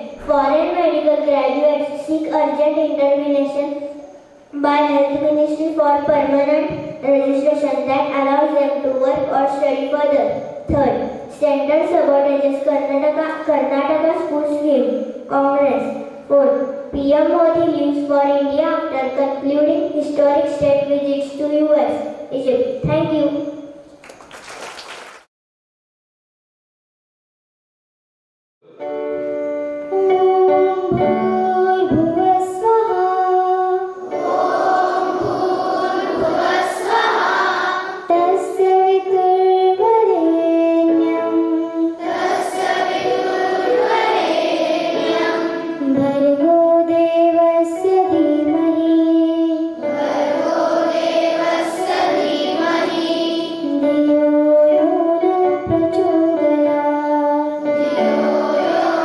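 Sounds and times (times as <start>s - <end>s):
girls chanting into microphone: 33.9s - 38.1s, 42.0s - 45.8s.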